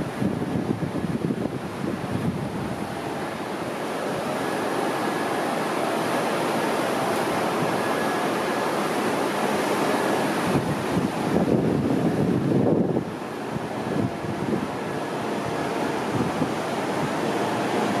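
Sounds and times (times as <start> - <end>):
wind buffeting microphone: 0.0 - 3.2, 10.3 - 18.0
ocean surf breaking: 1.0 - 18.0.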